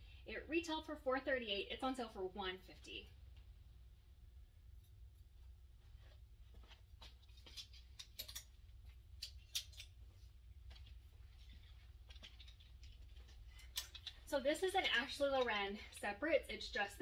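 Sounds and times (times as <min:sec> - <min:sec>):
low steady hum: 0:00.0 - 0:17.0
clothes and hangers rustling: 0:04.7 - 0:17.0.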